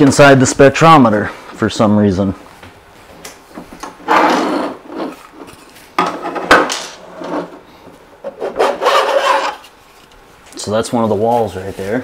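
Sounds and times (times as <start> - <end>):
plastic panel scraping: 4.0 - 9.8.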